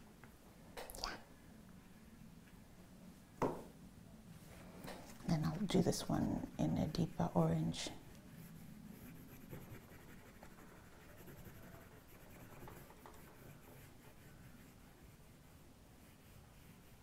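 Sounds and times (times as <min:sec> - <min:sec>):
pastel scratching on paper: 0:05.3 - 0:17.0.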